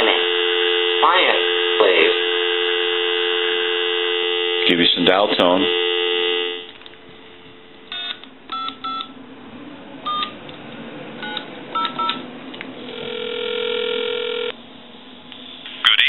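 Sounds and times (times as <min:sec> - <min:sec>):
phone ringback tone: 0:07.9 - 0:09.1, 0:10.1 - 0:10.4, 0:12.9 - 0:14.5
touch-tone dialing beeps: 0:08.0 - 0:09.1, 0:10.1 - 0:10.4, 0:11.2 - 0:12.2.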